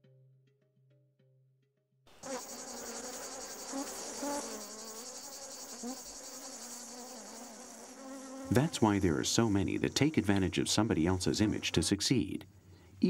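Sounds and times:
bees buzzing: 0:02.2 - 0:11.9
high insect chirring: 0:02.2 - 0:12.0.

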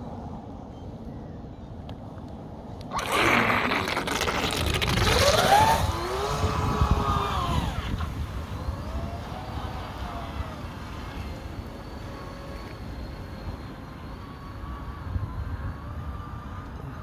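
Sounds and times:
water hissing: 0:02.9 - 0:05.7
electric motor whining: 0:02.9 - 0:17.0.

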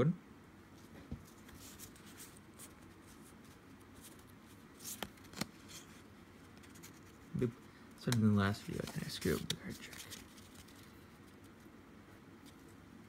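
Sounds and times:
trading cards sliding and rustling: 0:00.8 - 0:11.7.

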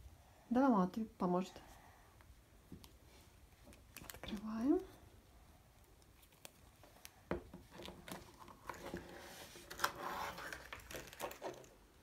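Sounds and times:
soft rustling of handling: 0:01.6 - 0:12.0.

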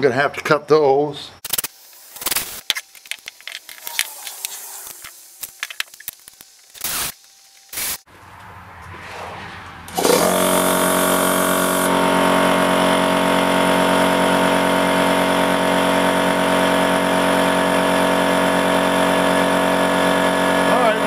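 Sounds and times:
air compressor running: 0:09.9 - 0:21.0.

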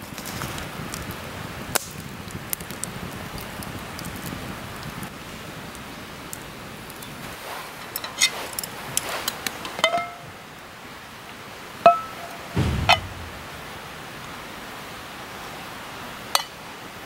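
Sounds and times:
dull knock: 0:12.6 - 0:13.6.

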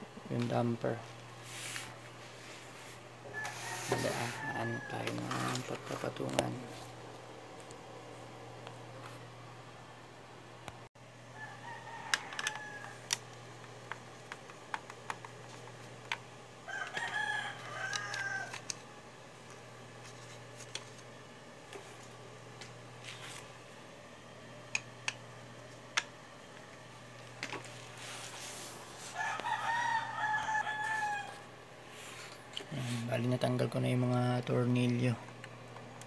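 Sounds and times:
rooster crowing: 0:03.2 - 0:05.8, 0:11.3 - 0:13.2, 0:16.6 - 0:18.7, 0:29.0 - 0:31.6
clicks and taps of plastic parts: 0:12.1 - 0:16.2.

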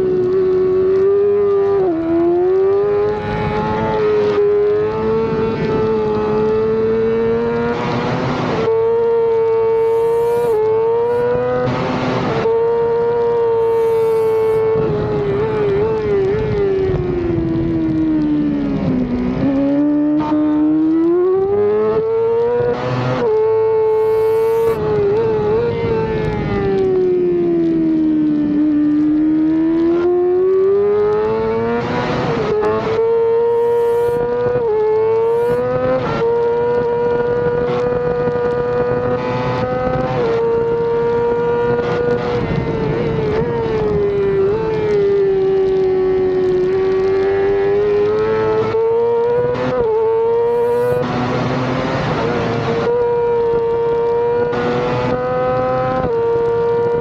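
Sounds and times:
motorcycle engine at high revs: 0:00.0 - 0:57.0
quick gear changes: 0:13.5 - 0:16.8, 0:19.4 - 0:25.3.

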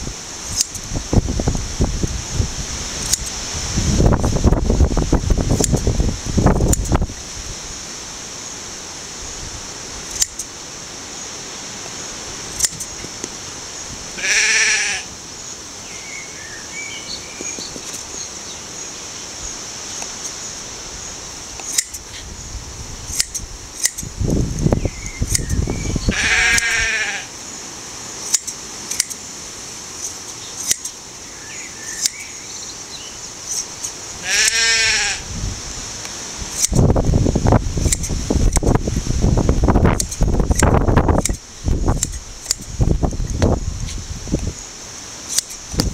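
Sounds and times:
hand shears snipping fleece: 0:00.4 - 0:00.9, 0:02.9 - 0:03.4, 0:05.5 - 0:05.9, 0:06.6 - 0:07.0, 0:10.1 - 0:10.5, 0:12.5 - 0:13.4, 0:21.6 - 0:22.3, 0:23.1 - 0:25.6, 0:28.2 - 0:29.2, 0:30.0 - 0:31.0, 0:32.0 - 0:32.2, 0:36.0 - 0:36.9, 0:37.8 - 0:38.7, 0:39.9 - 0:44.0, 0:45.3 - 0:45.9
sheep bleating: 0:14.2 - 0:15.1, 0:26.1 - 0:27.3, 0:34.2 - 0:35.2.

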